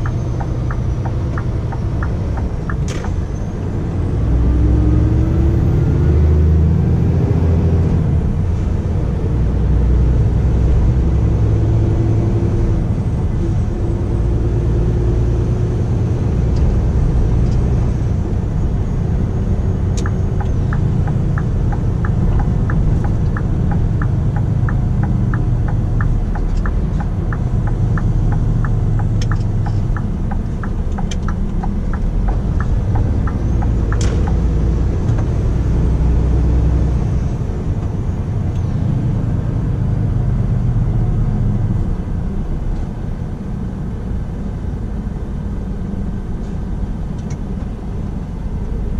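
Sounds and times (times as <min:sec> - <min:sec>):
turn indicator ticking: 0:00.0 - 0:03.5, 0:16.3 - 0:37.2
truck diesel engine rumble: 0:00.0 - 0:48.9.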